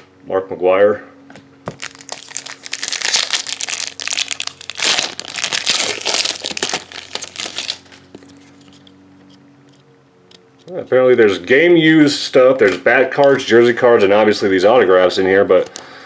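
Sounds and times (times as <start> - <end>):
foil wrapper crinkling: 1.7 - 8.8.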